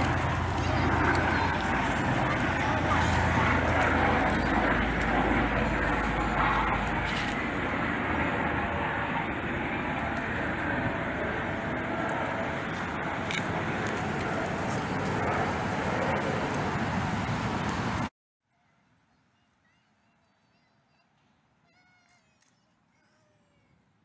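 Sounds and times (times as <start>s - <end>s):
outdoor rushing noise: 0.0s - 18.1s.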